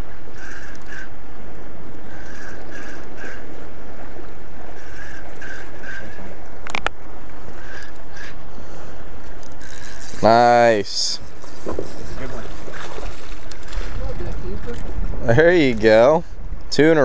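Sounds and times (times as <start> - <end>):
wind and water noise: 0.0 - 17.0
fishing reel whirring: 2.1 - 3.4, 7.6 - 8.3, 9.2 - 14.9.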